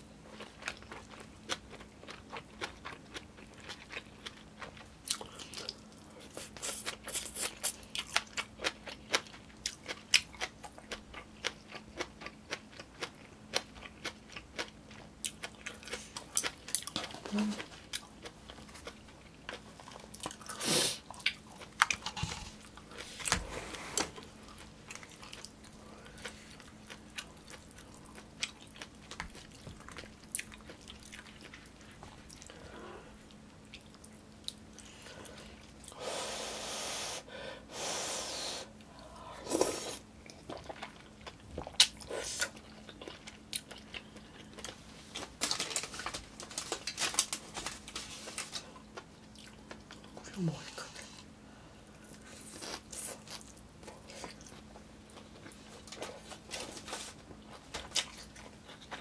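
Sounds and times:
chewing and slurping soup: 0:38.8 - 0:44.8.

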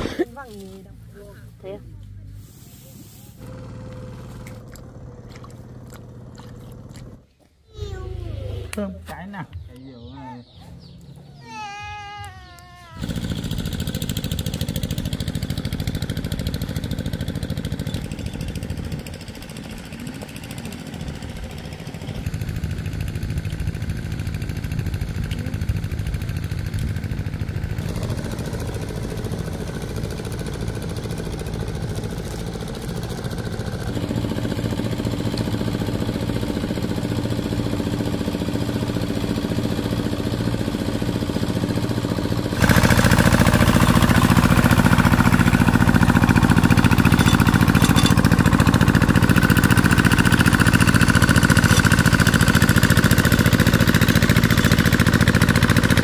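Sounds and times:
engine running: 0:00.0 - 0:56.0.

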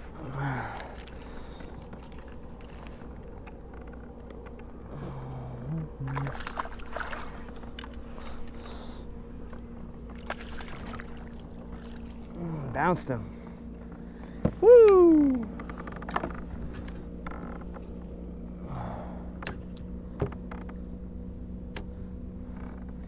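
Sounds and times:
water sloshing and splashing: 0:00.0 - 0:04.8, 0:05.8 - 0:14.6.

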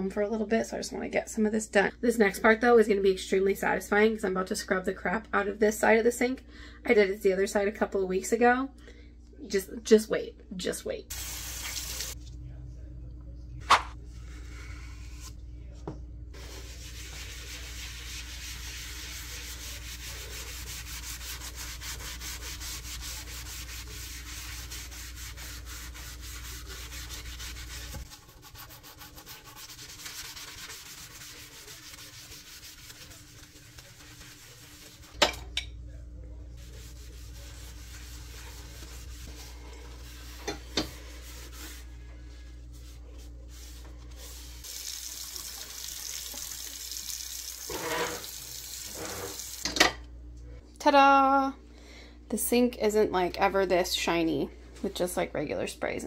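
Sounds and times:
sponge scrubbing a sink: 0:14.2 - 0:15.4, 0:16.3 - 0:35.2, 0:36.6 - 0:49.6.

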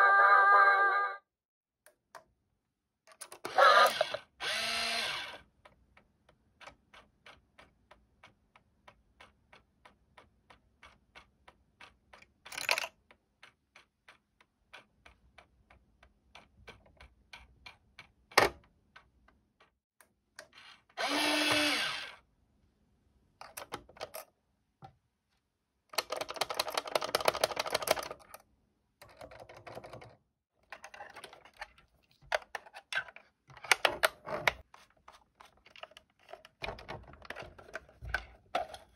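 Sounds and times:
small motor mechanism clicking: 0:03.3 - 0:05.5
clattering handling noise: 0:29.0 - 0:38.9.

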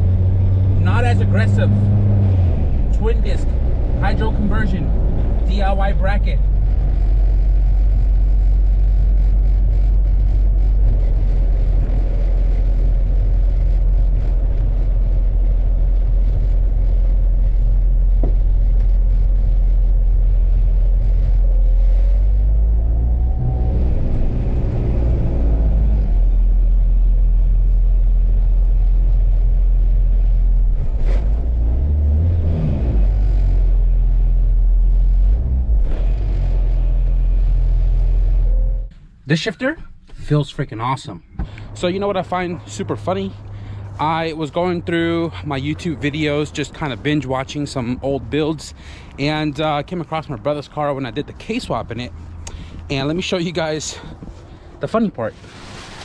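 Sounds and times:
engine revving: 0:00.0 - 0:27.2, 0:30.3 - 0:38.9
car engine and road rumble: 0:00.0 - 0:56.0.

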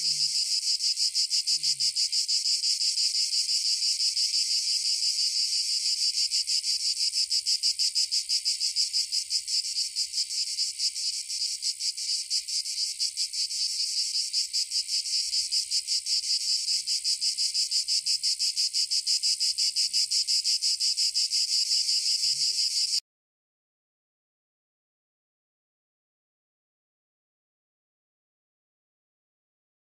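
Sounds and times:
insects trilling: 0:00.0 - 0:23.0.

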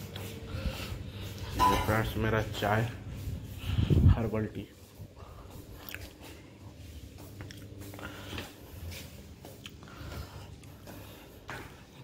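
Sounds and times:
footsteps on tiled floor: 0:00.0 - 0:12.0.

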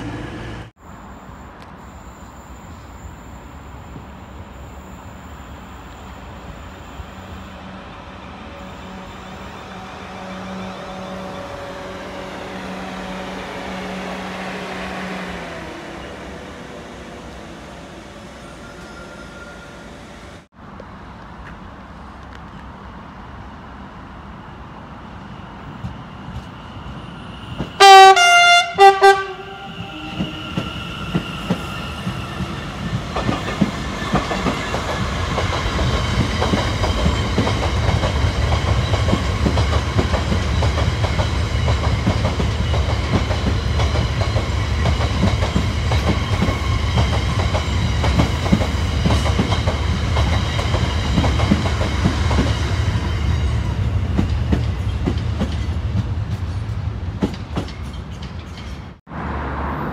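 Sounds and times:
train horn blasts: 0:06.8 - 0:15.3, 0:27.8 - 0:30.8
train wheels clickety-clack: 0:29.8 - 0:59.0.

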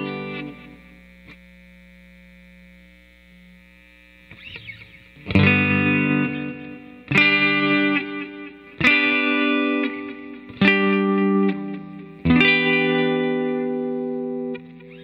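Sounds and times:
electric guitar chords strummed: 0:00.0 - 0:02.3, 0:04.2 - 0:15.0
guitar string noise: 0:04.3 - 0:15.0.

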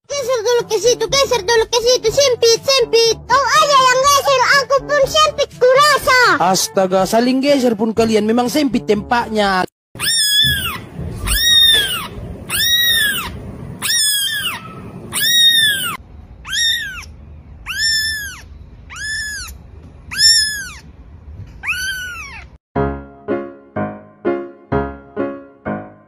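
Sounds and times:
kittens mewing: 0:10.0 - 0:20.9, 0:21.6 - 0:22.6.

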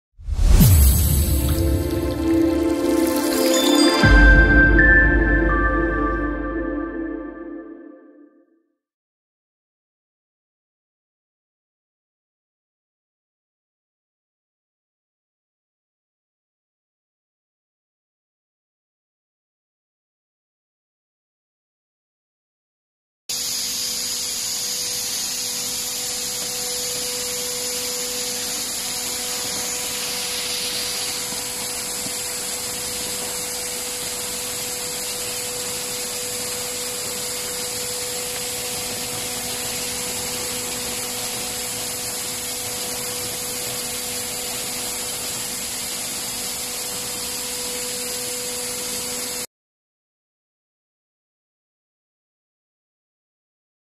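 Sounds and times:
strong hiss: 0:00.3 - 0:04.2, 0:23.3 - 0:49.0
ice machine humming: 0:01.2 - 0:06.1, 0:23.6 - 0:49.4.

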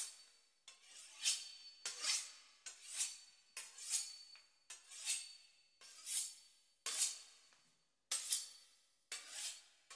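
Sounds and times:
knife sawing through pastry crust: 0:09.1 - 0:09.7.

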